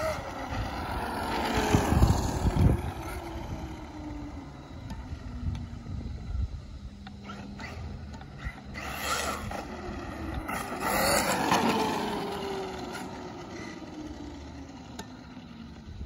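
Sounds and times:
rc truck motor whining: 0.0s - 16.0s.

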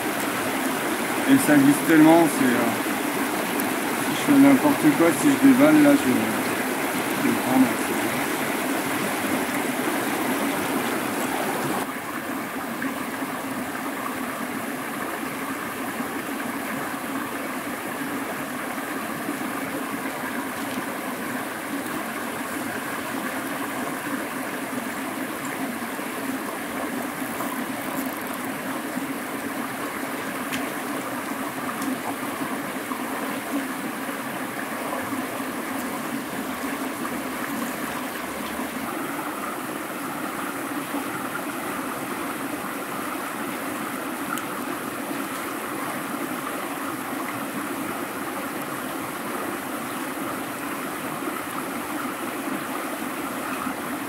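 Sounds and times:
river water rushing over stones: 0.0s - 54.0s.

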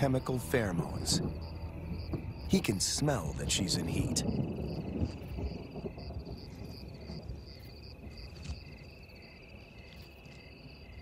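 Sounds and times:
crickets trilling: 0.0s - 11.0s
insect chirping in short pulses: 0.0s - 11.0s
low rumble: 0.4s - 8.0s.

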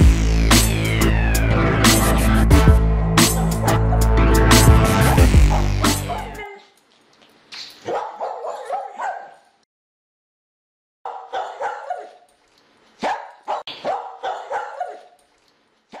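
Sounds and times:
dog yapping and barking: 7.8s - 9.6s, 11.1s - 12.3s, 13.0s - 15.2s.

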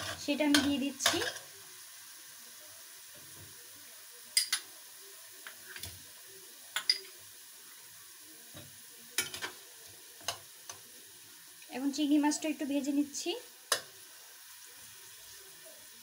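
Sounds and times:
utensils clinking against pan: 0.0s - 1.5s, 4.4s - 4.7s, 6.8s - 7.2s, 9.2s - 9.6s
food sizzling in a pan: 0.0s - 16.0s.

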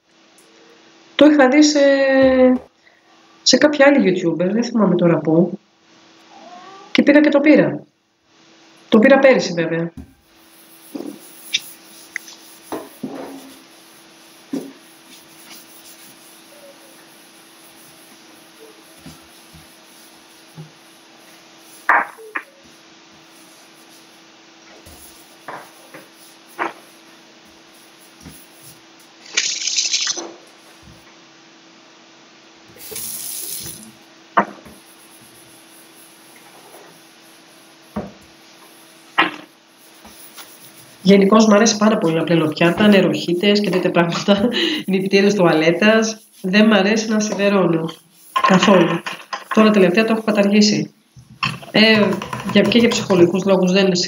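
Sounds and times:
faint steady hum: 0.0s - 54.0s
brush scrubbing steel sink: 10.0s - 24.2s, 24.8s - 30.0s, 32.8s - 34.0s, 34.6s - 38.0s, 38.6s - 53.8s.

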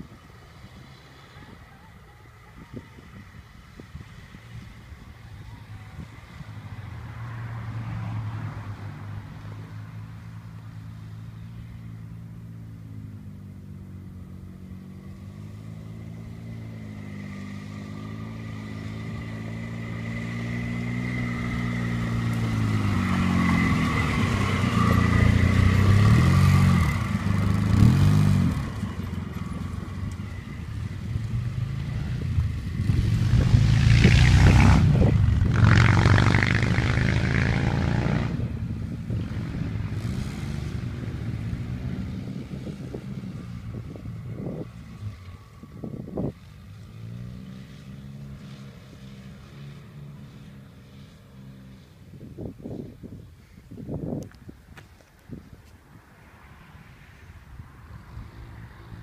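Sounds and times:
quad bike engine revving: 15.0s - 51.8s.

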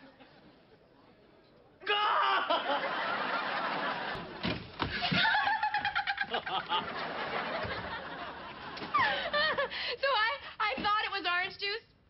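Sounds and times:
studio audience laughing: 2.5s - 9.8s.

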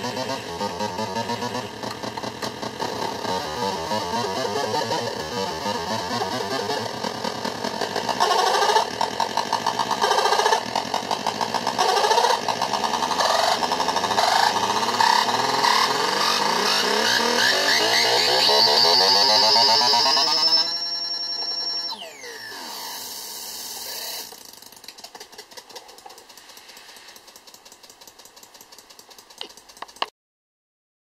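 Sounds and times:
harsh pulsing electronic buzz: 0.0s - 24.3s.

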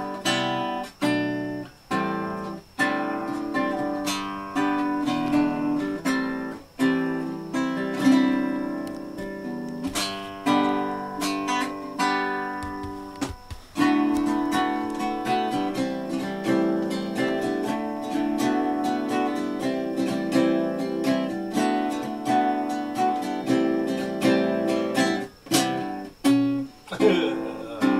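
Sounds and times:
acoustic guitar chords strummed: 0.0s - 27.9s.

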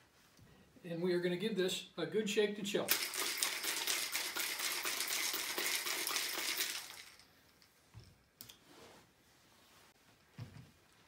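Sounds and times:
ice rattling in cocktail shaker: 2.9s - 7.4s.

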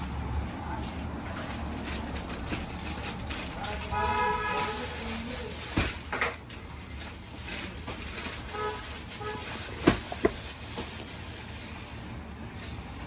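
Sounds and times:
box knocking on glass counter: 9.8s - 10.4s.

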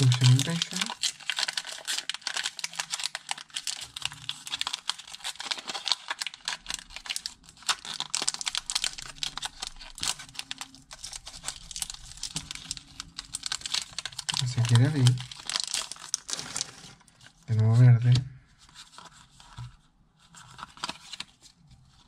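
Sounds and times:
foil wrapper crinkling: 0.0s - 17.4s.

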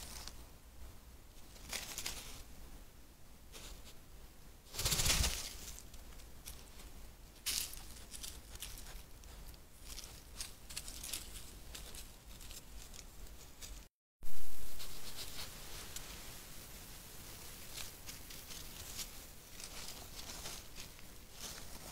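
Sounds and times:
animal rustling and scratching: 1.4s - 2.5s, 4.7s - 13.9s, 14.8s - 16.3s, 17.2s - 21.9s
fur brushing microphone: 14.6s - 21.9s.

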